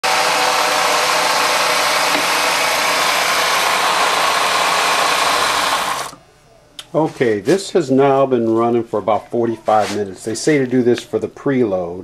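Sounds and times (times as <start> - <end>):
metal lathe whirring: 0.0 - 6.2.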